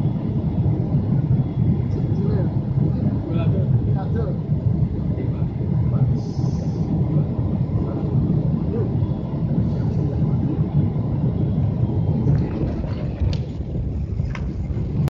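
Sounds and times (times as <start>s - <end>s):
airliner cabin engine rumble: 0.0s - 15.0s.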